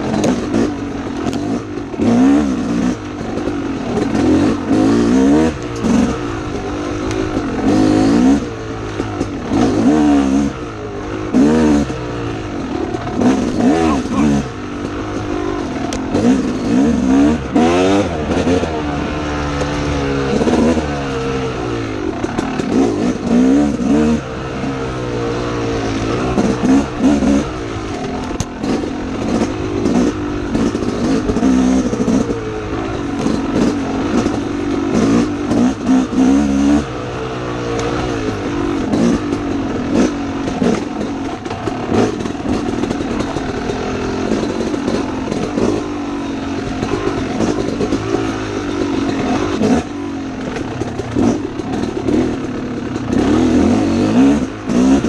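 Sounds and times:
dirt bike engine revving: 0.0 - 55.0
knocks and clatter: 38.8 - 46.0, 46.6 - 55.0.

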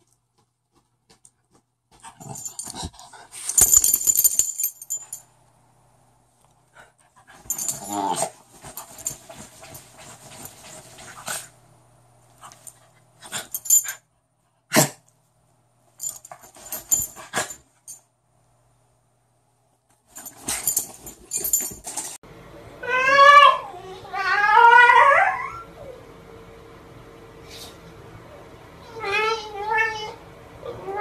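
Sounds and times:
scuffling and snuffling: 7.1 - 11.5
dog whining howls: 22.8 - 26.0.

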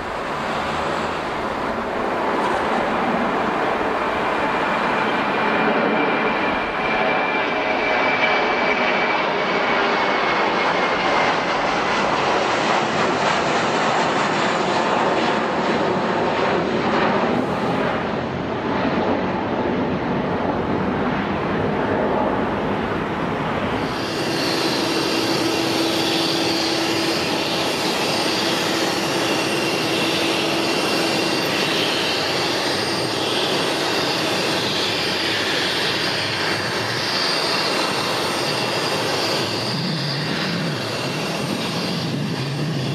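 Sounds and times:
jet engines running: 0.0 - 42.9.

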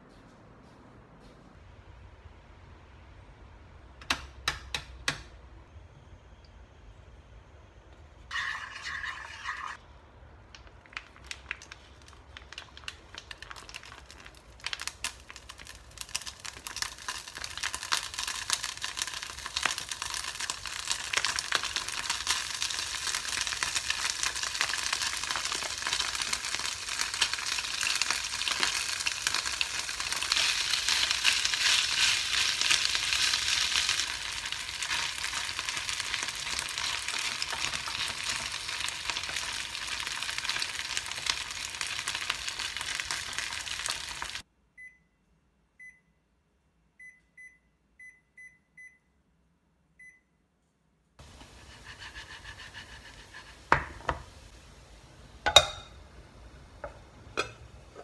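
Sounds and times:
potato sizzling in a pan: 12.0 - 44.4, 51.2 - 58.0.

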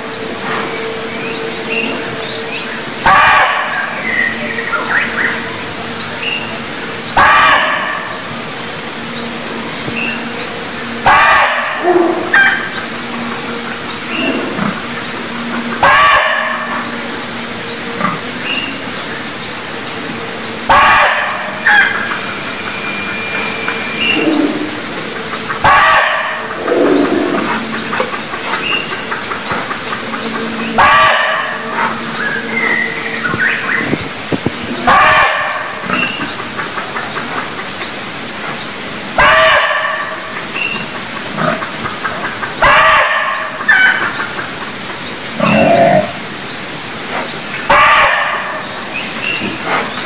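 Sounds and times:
deer barking: 3.0 - 3.8, 7.2 - 8.1, 11.0 - 12.6, 15.8 - 16.8, 20.7 - 22.0, 25.6 - 27.5, 30.8 - 31.6, 34.8 - 36.0, 39.2 - 40.1, 42.6 - 43.9, 47.7 - 48.6.

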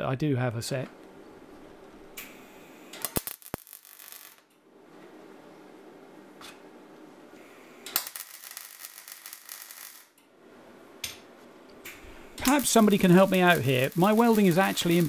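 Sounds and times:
welding arc crackling: 3.0 - 4.4, 7.9 - 10.2, 11.9 - 15.0
low steady hum: 10.3 - 15.0.

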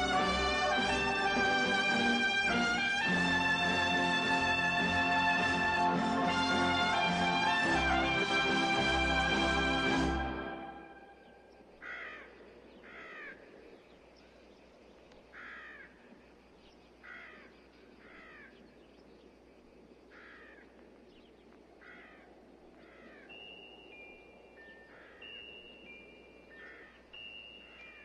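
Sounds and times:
faint steady hiss: 0.0 - 28.0
crows cawing: 11.8 - 13.8, 15.3 - 16.1, 17.0 - 18.6, 20.1 - 20.8, 21.8 - 23.4, 24.8 - 25.4, 26.5 - 28.0.

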